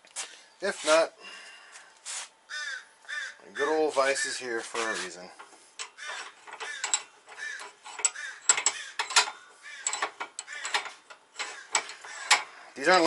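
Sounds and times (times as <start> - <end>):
metal clicks: 5.4 - 12.6
short squeaks: 5.9 - 12.6.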